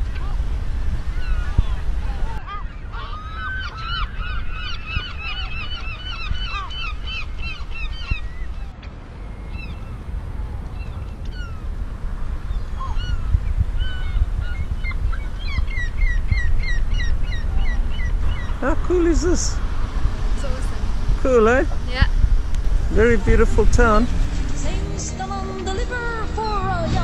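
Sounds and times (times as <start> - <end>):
birds squawking: 1.1 - 10.0, 10.7 - 11.7, 12.4 - 19.5
low rumble: 6.1 - 27.0.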